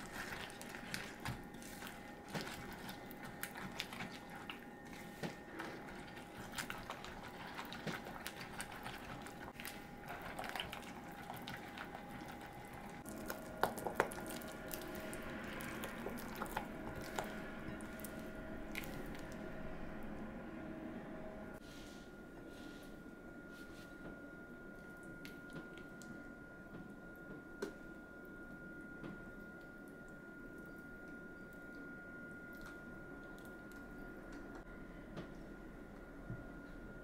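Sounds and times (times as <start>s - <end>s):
batter stirred in a bowl: 0.0s - 19.5s.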